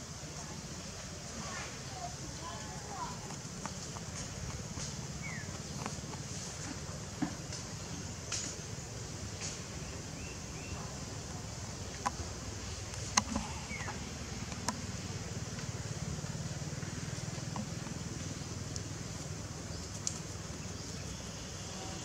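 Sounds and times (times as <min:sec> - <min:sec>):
distant engine hum: 0:00.0 - 0:22.0
sharp clicks: 0:12.8 - 0:14.8, 0:19.8 - 0:20.3.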